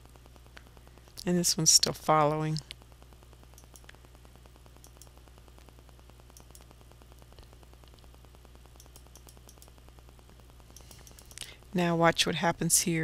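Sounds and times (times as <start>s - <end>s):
faint computer hum and hiss: 0.0s - 13.0s
faint mouse clicks: 3.5s - 4.0s, 4.8s - 5.7s, 6.3s - 8.1s, 8.7s - 9.7s.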